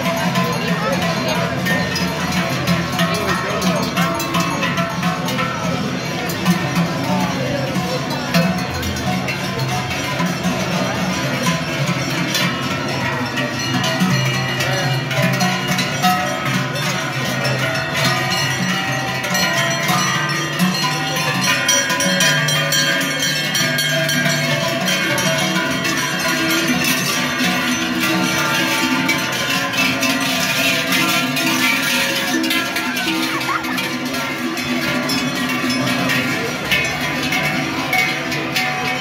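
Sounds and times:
cowbells clanging: 0.0 - 39.0.

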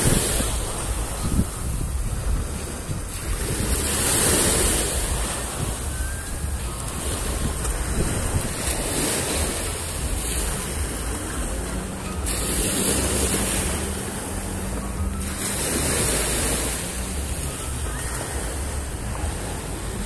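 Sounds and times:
waves breaking on beach: 0.0 - 20.0
wind buffeting microphone: 0.0 - 20.0.

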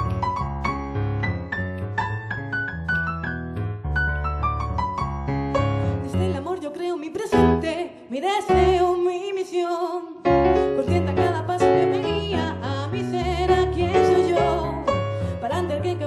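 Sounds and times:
digital keyboard piano: 0.0 - 6.3, 10.3 - 15.7
woman singing with vibrato: 6.1 - 16.0.

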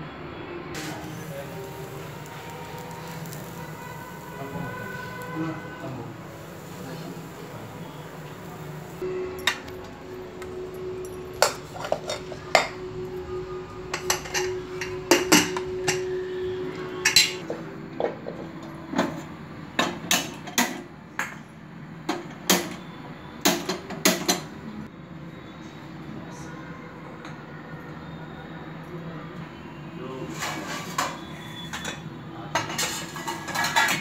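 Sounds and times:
utensils clinking on steel dishes: 9.3 - 12.8, 13.9 - 16.1, 17.0 - 17.5, 30.3 - 34.0.

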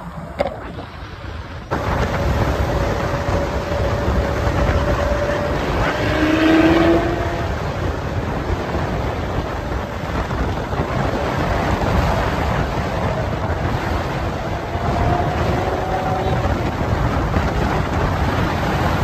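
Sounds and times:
faint car engine: 0.0 - 19.0
road noise: 0.0 - 19.0
wind rush on microphone: 0.0 - 19.0.

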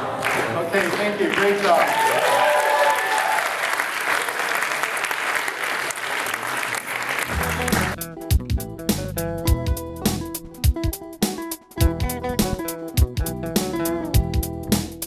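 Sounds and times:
audience clapping and cheering: 0.0 - 8.0
whoops: 1.8 - 3.8
guitar music: 7.3 - 15.0.

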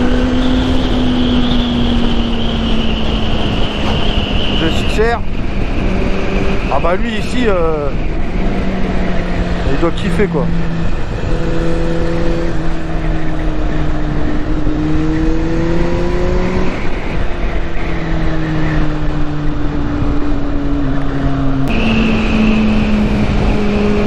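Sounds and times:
motorcycle engine revving: 0.0 - 7.3, 7.9 - 24.0
wind rush: 0.0 - 24.0.

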